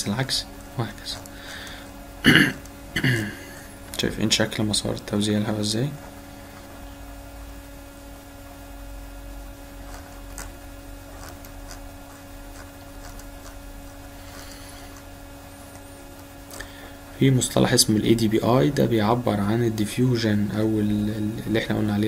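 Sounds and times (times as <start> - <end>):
electrical hum: 0.0 - 22.0.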